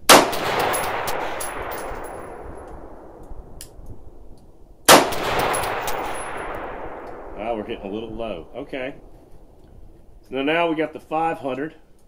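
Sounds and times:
rifle shot with echo: 0.1 - 4.1, 4.9 - 9.6.

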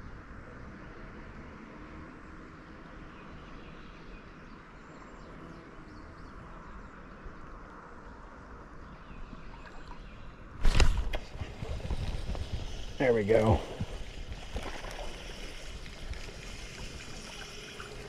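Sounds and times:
splashing and handling noise: 10.6 - 18.0.

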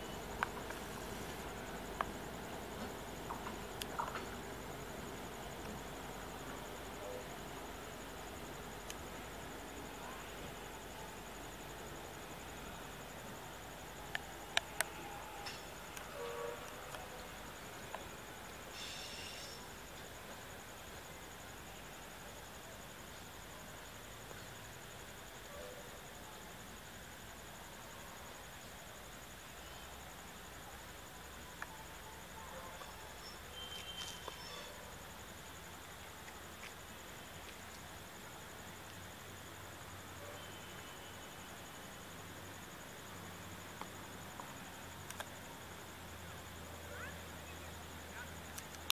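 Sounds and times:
insects chirping: 0.0 - 48.9
low background hiss: 0.0 - 48.9
faint clicks: 2.8 - 4.3, 43.8 - 45.4, 48.5 - 48.9
sharp clicks: 45.0 - 45.4, 48.5 - 48.9.

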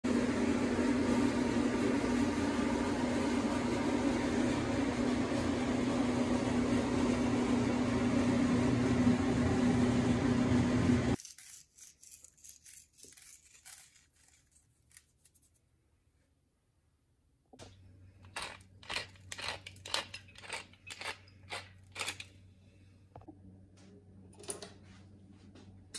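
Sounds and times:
machine whir with low hum: 0.0 - 11.2, 17.0 - 25.9.

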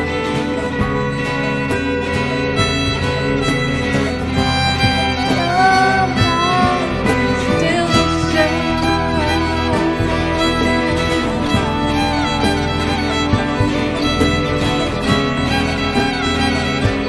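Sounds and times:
fiddle playing melody: 0.0 - 17.0
folk band accompaniment: 0.0 - 17.0.

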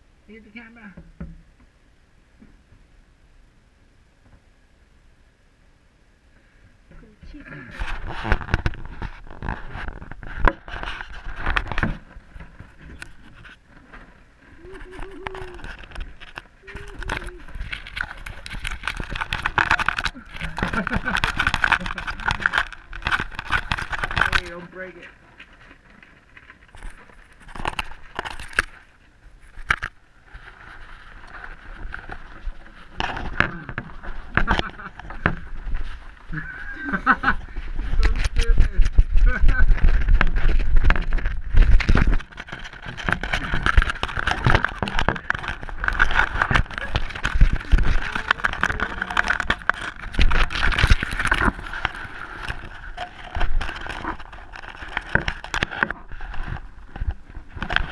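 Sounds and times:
rustling in wood shavings: 7.3 - 57.9
hamster tapping and scraping camera: 14.7 - 25.0, 26.5 - 28.8, 37.9 - 57.9.

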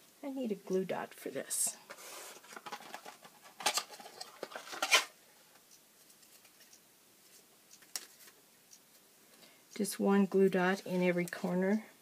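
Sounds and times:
plastic box rustling scrapes: 1.9 - 5.2.

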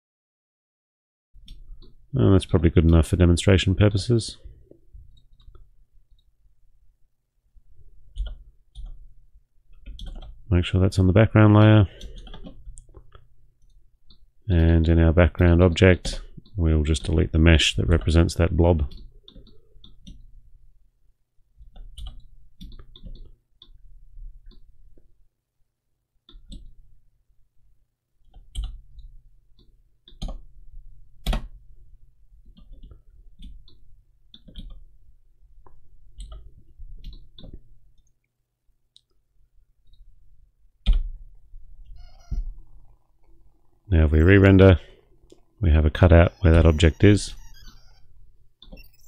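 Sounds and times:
mouse and keyboard clicks: 48.6 - 49.0.

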